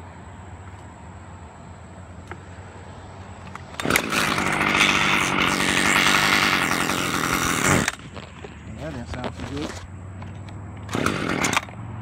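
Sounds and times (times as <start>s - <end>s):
chainsaw revving: 3.6s - 9.8s, 10.8s - 11.8s.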